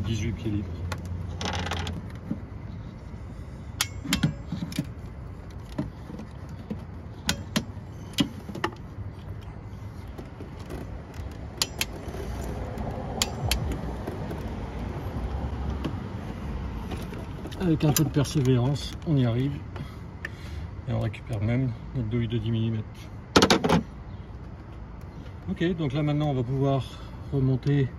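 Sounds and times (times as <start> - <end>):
steady low hum: 0.0 - 20.9
metal tools clinking on engine: 3.7 - 9.5, 10.5 - 14.5.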